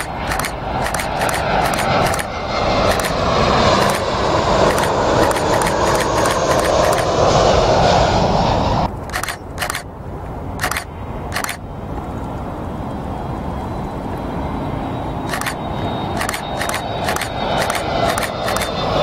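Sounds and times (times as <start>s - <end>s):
camera zoom motor whirring: 0.0s - 7.3s, 9.0s - 9.9s, 10.6s - 11.6s, 15.2s - 18.9s
distant jet approaching: 0.0s - 19.0s
jet passing low overhead: 0.0s - 19.0s.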